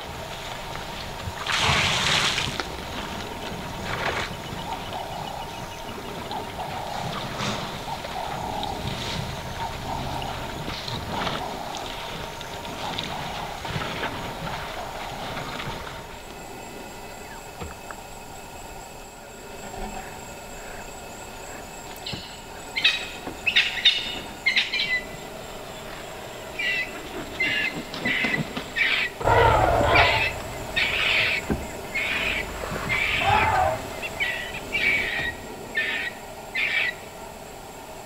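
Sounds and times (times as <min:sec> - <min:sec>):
birds calling: 0:02.9 - 0:14.6, 0:21.5 - 0:37.1.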